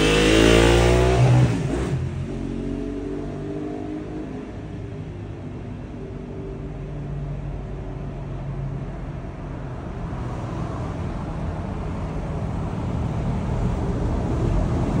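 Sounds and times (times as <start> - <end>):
car road and engine rumble: 0.0 - 15.0.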